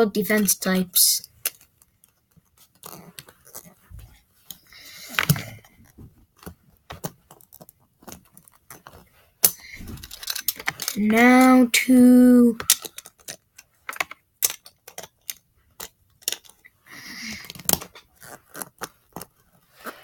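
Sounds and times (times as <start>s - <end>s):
plastic toy parts clicking: 6.4s - 11.6s, 12.6s - 16.6s.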